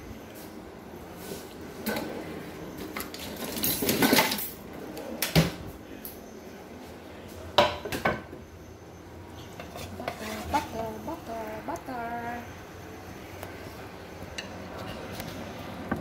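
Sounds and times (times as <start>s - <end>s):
pans and utensils clattering: 2.9s - 4.6s.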